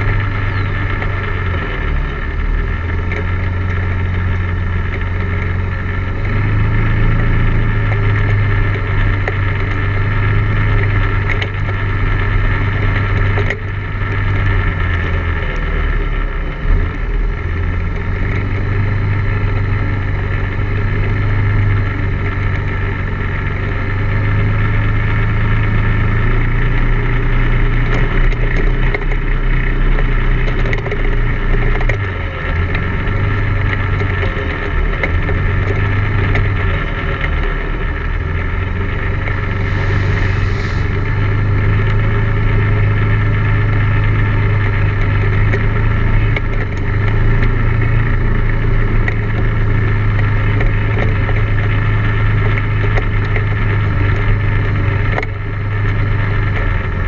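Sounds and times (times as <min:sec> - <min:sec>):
atv engine running: 0:00.0 - 0:57.0
mud and water spraying: 0:38.9 - 0:42.2.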